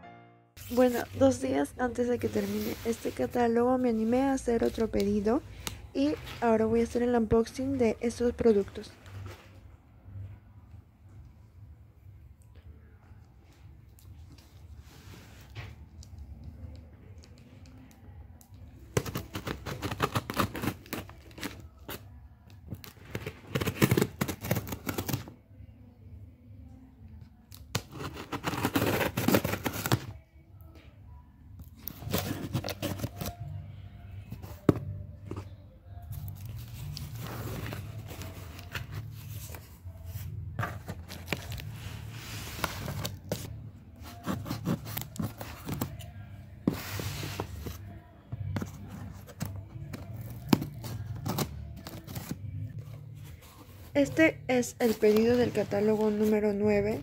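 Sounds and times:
soft background music: 0.0s - 57.0s
packing tape tearing off cardboard: 18.9s - 22.0s, 22.8s - 25.3s, 27.6s - 30.1s, 31.8s - 33.4s, 42.4s - 46.0s.

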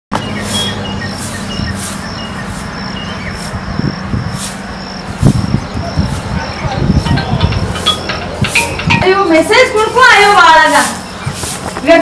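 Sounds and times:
faint chirps: 0.2s - 8.8s
steady low rumble: 0.8s - 12.0s.

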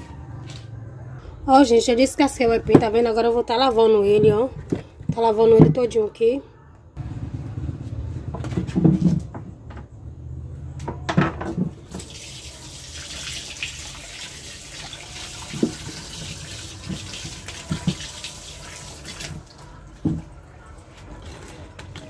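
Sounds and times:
tap water running into sink: 11.9s - 19.5s.

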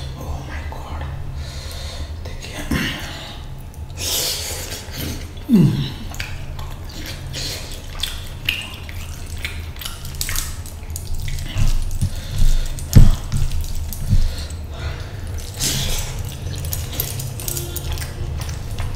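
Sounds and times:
steady low hum: 0.0s - 18.9s
wet chewing and lip smacks: 4.6s - 18.9s.

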